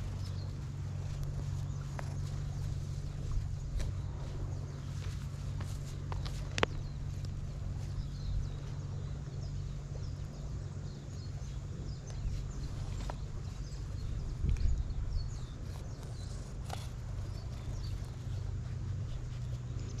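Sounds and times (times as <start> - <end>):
steps rustling in grass: 0.0 - 8.8
low rumble: 0.0 - 20.0.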